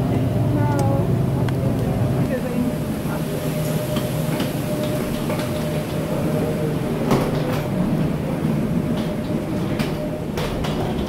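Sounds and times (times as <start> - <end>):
airliner machinery hum: 0.0 - 11.0
clicks and knocks of passengers: 3.9 - 11.0.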